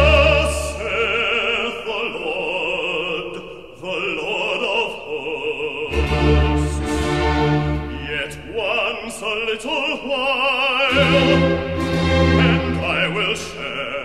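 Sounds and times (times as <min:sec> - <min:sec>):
operatic singing: 0:00.0 - 0:14.0
sustained musical accompaniment: 0:05.8 - 0:09.0, 0:10.9 - 0:14.0.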